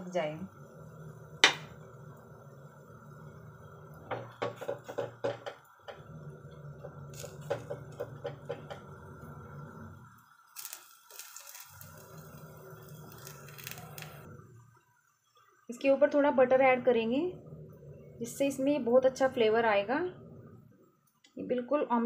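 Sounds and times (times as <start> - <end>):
steady low hum: 0.0 - 22.0
bread crackling in frying pan: 1.4 - 14.3.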